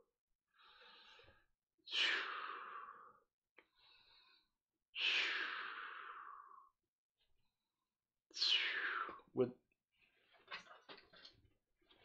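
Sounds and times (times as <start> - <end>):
quiet inhales: 0.5 - 6.7.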